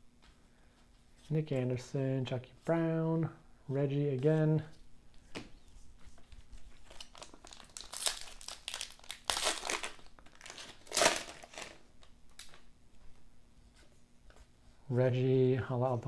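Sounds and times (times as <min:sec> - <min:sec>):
foil wrapper crinkling: 0:06.2 - 0:12.7.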